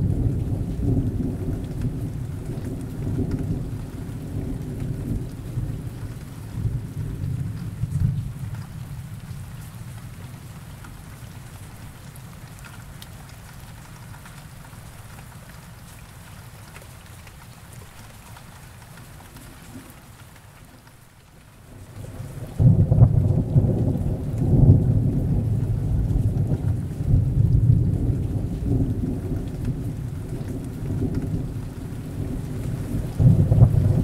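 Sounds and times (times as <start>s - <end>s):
thunder rumbling: 0.0s - 10.3s, 22.0s - 34.0s
rain on leaves: 0.0s - 34.0s.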